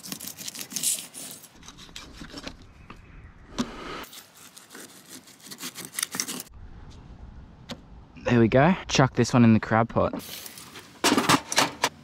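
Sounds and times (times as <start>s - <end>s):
knife rasping through fish scales: 0.0s - 1.6s, 4.0s - 6.5s.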